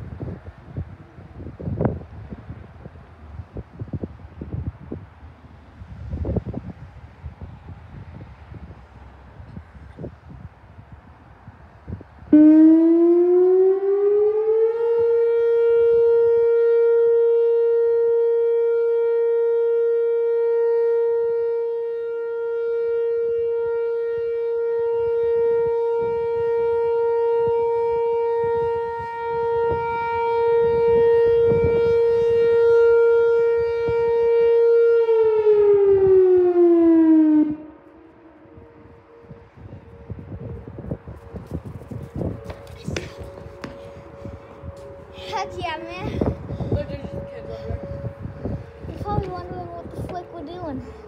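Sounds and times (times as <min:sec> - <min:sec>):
warning siren tone: 0:08.4 - 0:51.0.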